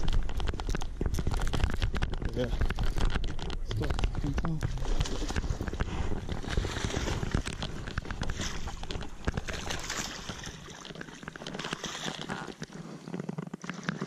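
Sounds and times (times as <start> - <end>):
fish splashing at water surface: 4.2 - 12.8.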